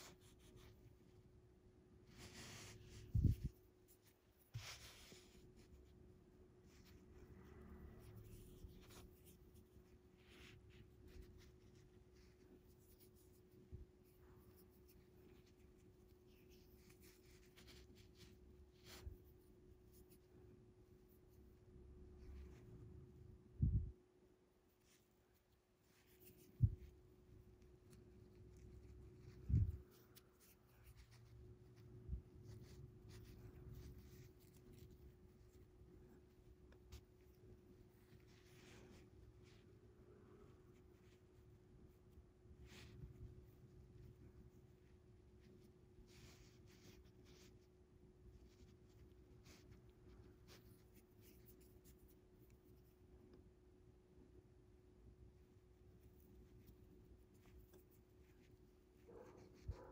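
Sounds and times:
faint steady hum: 0.0s - 59.9s
fingers rustling fishing line: 24.7s - 39.6s.

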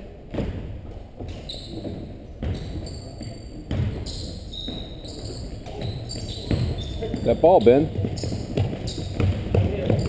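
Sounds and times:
basketball bouncing on hardwood: 1.2s - 10.0s
shoes squeaking on court: 1.2s - 10.0s.

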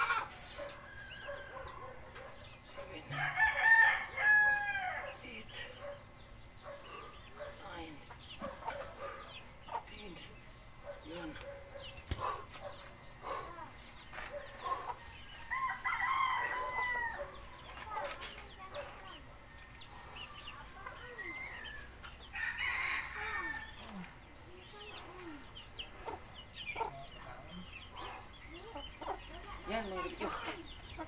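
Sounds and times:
rooster crowing: 3.1s - 5.1s, 15.4s - 17.4s, 22.3s - 23.7s
chickens clucking: 5.5s - 22.5s, 23.2s - 31.0s.

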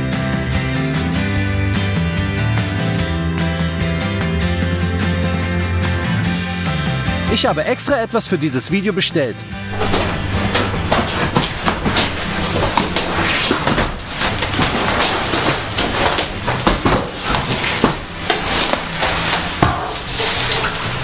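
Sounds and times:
bubble wrap crinkling: 9.7s - 21.0s
cardboard flaps scraping: 9.7s - 21.0s.

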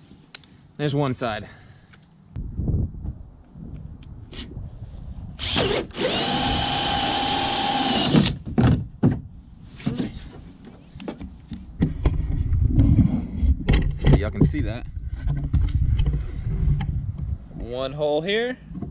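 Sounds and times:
cordless drill whining: 5.4s - 8.4s.

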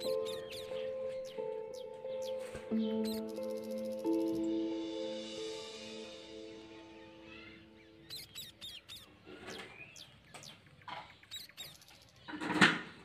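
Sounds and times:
high squeaks and chirps: 0.0s - 4.5s, 7.0s - 12.4s.

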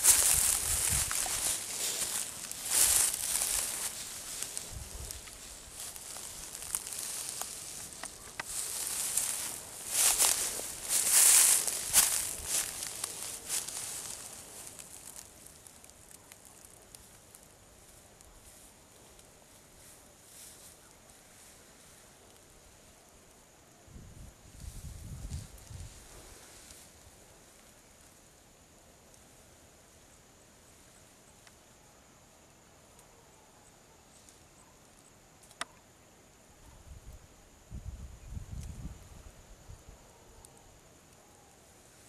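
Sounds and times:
footsteps through long grass: 0.0s - 22.1s, 24.5s - 27.7s.

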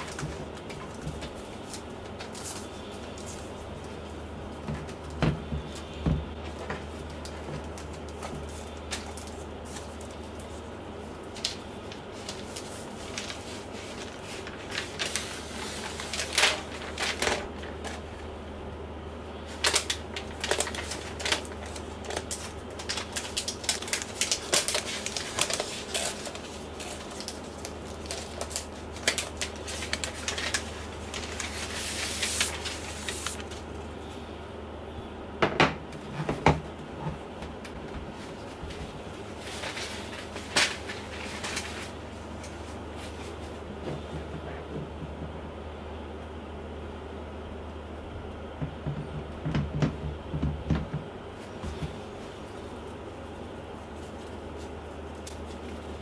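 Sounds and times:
plastic wrap crinkling: 0.0s - 18.3s, 19.4s - 33.8s, 38.1s - 43.5s, 51.5s - 56.0s
steady low hum: 0.0s - 56.0s.

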